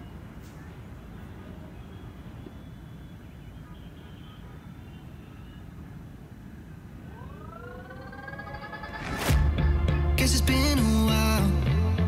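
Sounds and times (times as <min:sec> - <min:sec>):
electronic music: 0:07.1 - 0:12.0.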